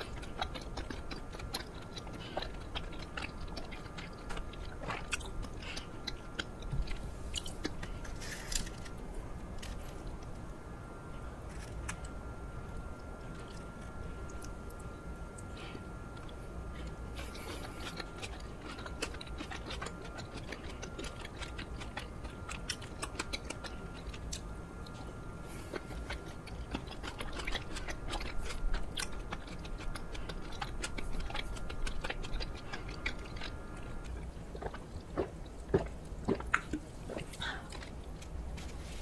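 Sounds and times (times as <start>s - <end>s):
wet chewing of sticky rice cake: 0.0s - 39.0s
gulping a drink: 26.2s - 38.0s.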